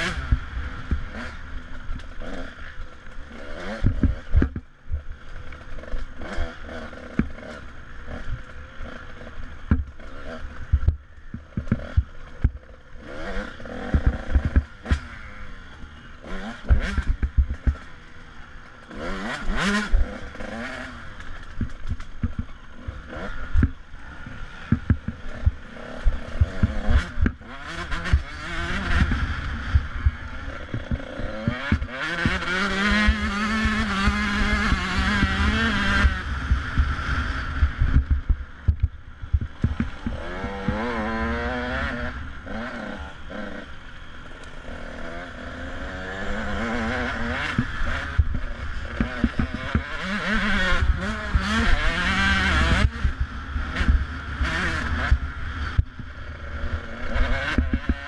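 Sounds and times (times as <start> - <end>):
dirt bike engine revving: 0.0 - 58.0
knocks and clatter over rocks: 21.2 - 22.6.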